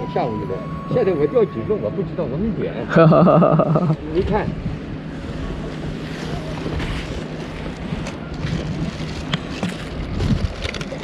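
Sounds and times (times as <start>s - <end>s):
wind buffeting the microphone: 3.9s - 11.0s.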